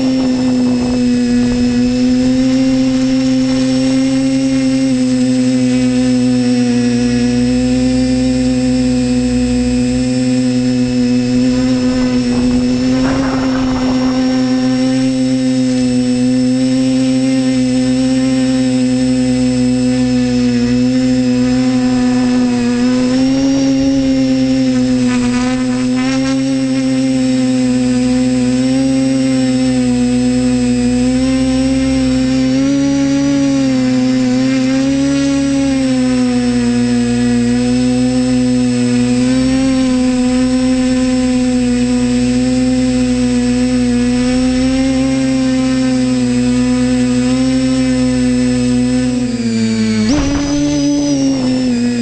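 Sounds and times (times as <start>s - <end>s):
low rumble of prop wash: 0.0s - 16.4s
drone propellers whining: 0.0s - 52.0s.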